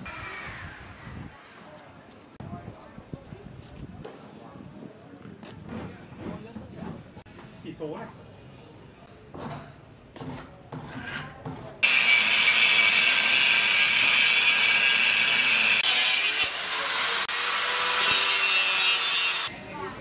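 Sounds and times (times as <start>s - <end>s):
angle grinder cutting metal: 11.8s - 19.5s.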